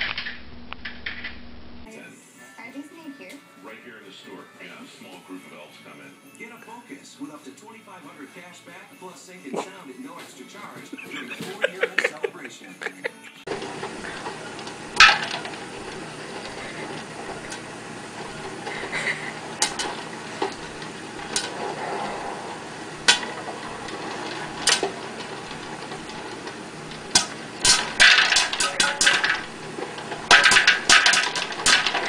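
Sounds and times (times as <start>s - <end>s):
popcorn popping: 0.0s - 1.3s, 13.5s - 32.0s
popcorn popper running: 0.0s - 1.6s, 11.0s - 32.0s.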